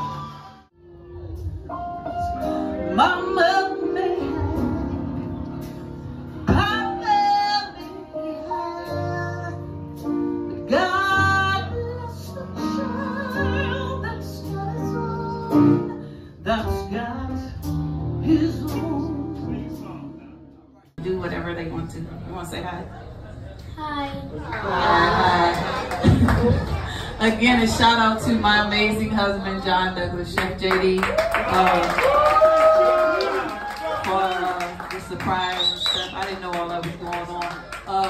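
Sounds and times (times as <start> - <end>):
woman singing into microphone: 2.8 - 5.0, 18.2 - 20.1.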